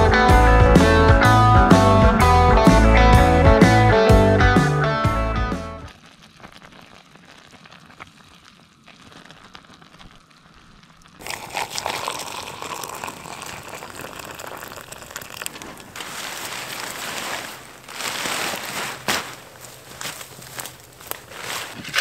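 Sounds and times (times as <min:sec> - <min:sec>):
guitar music: 0:00.0 - 0:05.9
hot water pouring into metal mug: 0:11.1 - 0:16.8.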